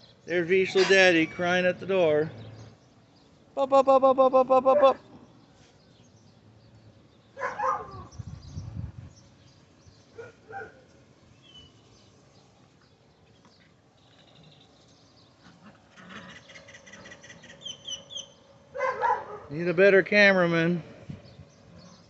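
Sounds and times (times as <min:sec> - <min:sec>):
bird chirp: 0:00.0 - 0:04.2, 0:04.8 - 0:19.6, 0:21.1 - 0:22.0.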